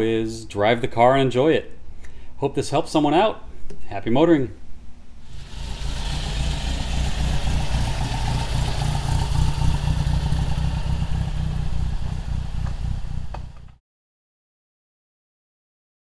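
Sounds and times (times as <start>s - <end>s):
car engine driving past: 5.2s - 13.8s.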